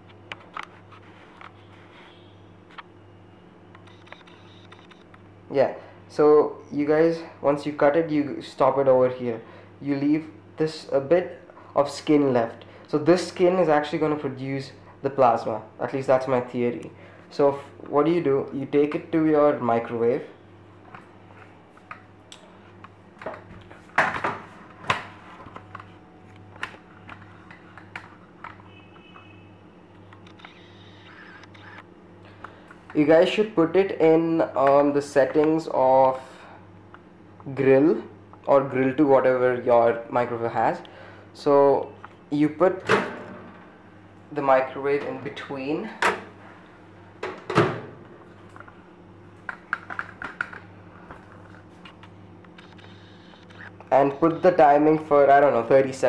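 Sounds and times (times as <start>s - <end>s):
microwave door shutting: 42.8s - 43.7s.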